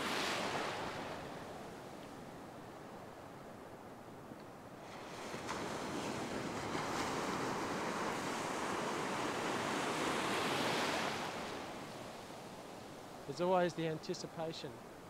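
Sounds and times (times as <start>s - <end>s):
ocean wave breaking: 0.0s - 2.0s, 4.8s - 13.2s.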